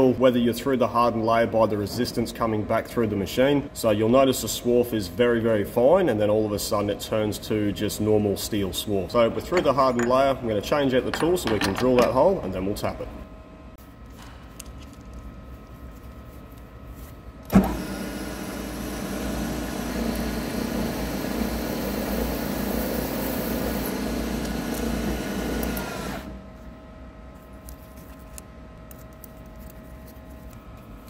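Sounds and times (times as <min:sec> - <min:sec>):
milling machine motor running: 0:17.5 - 0:26.4.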